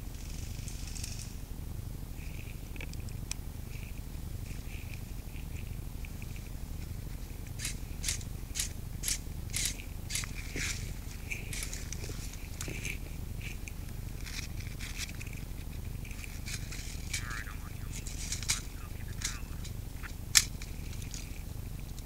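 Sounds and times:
steady low rumble: 0.0 - 22.0
rustles and twig snaps: 0.1 - 1.4, 2.2 - 22.0.

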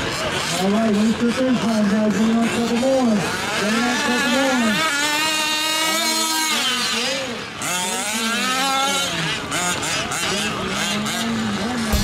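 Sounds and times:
small two-stroke engines revving: 0.0 - 12.0.

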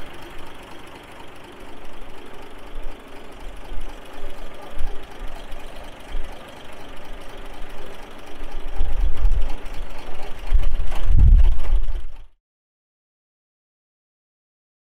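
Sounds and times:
diesel engine idling: 0.0 - 12.4
wind buffeting microphone: 10.3 - 12.2.

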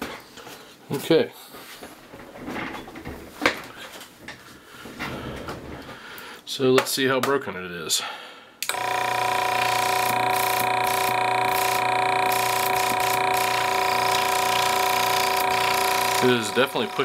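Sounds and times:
air compressor buzzing hum: 8.6 - 17.0.

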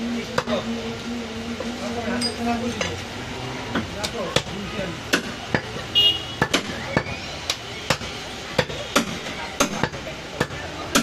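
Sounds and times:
cleaver chopping meat on wood: 3.8 - 11.0.

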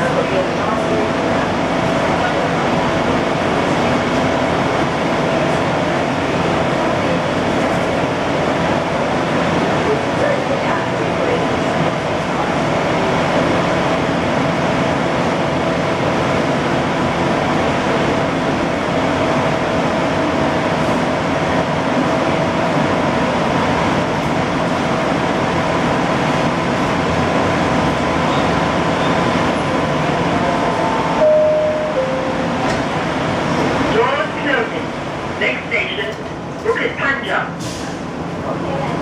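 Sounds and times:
air-conditioning hum: 30.0 - 37.5
two-note falling chime: 31.2 - 32.7.

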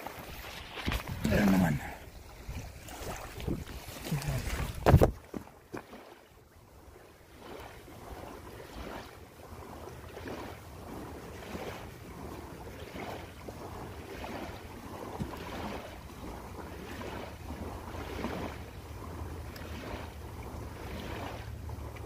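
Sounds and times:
wind rumbling on microphone: 0.0 - 5.6
soft swishing water swells: 0.0 - 22.0.

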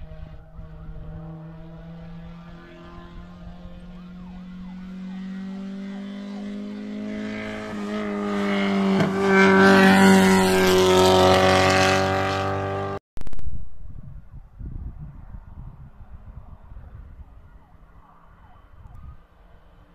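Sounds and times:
race car engine passing by: 0.0 - 13.0.

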